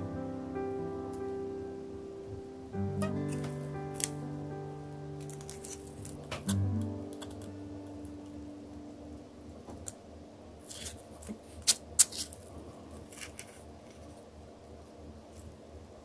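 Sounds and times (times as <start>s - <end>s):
held musical note: 0.0s - 9.5s.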